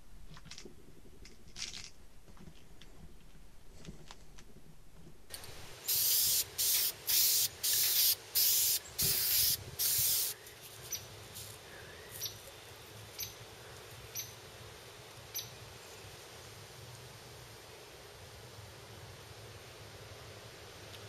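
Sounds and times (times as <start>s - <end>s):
spray can hissing bursts: 5.3s - 10.4s.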